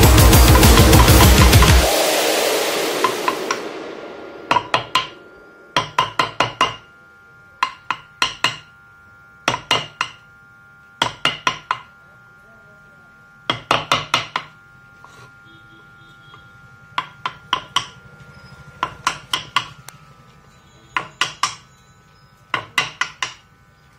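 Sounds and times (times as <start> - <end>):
mallet tapping chisel into wood: 5.8 - 6.8, 7.6 - 8.7, 9.5 - 10.2, 11.0 - 11.9, 13.5 - 14.5, 17.0 - 18.0, 18.8 - 19.8, 21.0 - 21.6, 22.5 - 23.4.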